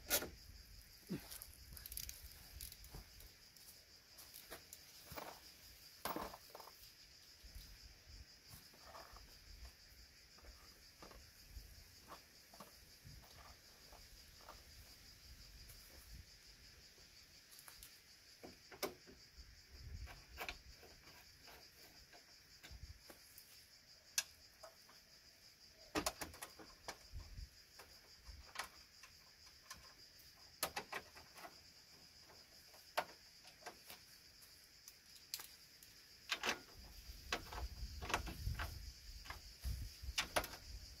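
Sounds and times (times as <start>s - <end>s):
insect chirring: 0.0s - 41.0s.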